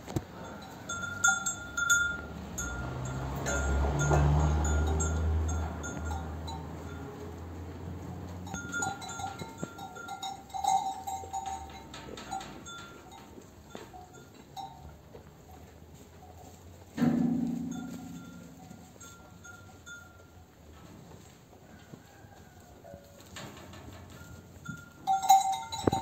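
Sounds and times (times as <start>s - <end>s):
sheep bells clinking: 0.0s - 26.0s.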